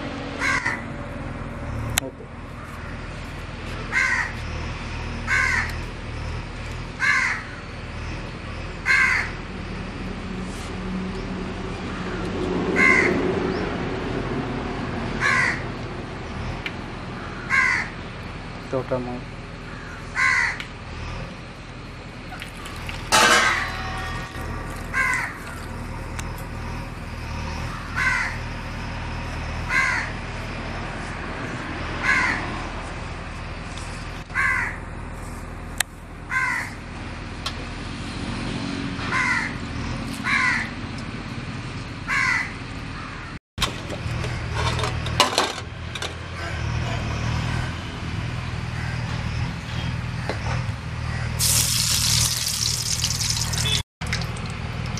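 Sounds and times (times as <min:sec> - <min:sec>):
crow cawing: 0:00.4 - 0:00.8, 0:03.9 - 0:04.5, 0:05.3 - 0:05.8, 0:07.0 - 0:07.6, 0:08.8 - 0:09.4, 0:11.9 - 0:13.2, 0:15.2 - 0:15.6, 0:17.2 - 0:18.0, 0:19.6 - 0:20.7, 0:24.8 - 0:25.8, 0:27.6 - 0:28.4, 0:29.7 - 0:30.2, 0:32.0 - 0:32.5, 0:34.3 - 0:34.8, 0:36.3 - 0:36.8, 0:39.0 - 0:39.6, 0:40.2 - 0:40.7, 0:42.1 - 0:43.4, 0:48.7 - 0:49.1.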